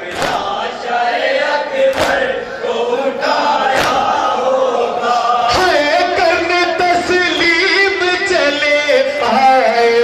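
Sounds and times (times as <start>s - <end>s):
men chanting in unison: 0.0s - 10.0s
chest-beating slaps: 0.1s - 0.6s, 1.9s - 2.3s, 3.7s - 4.2s.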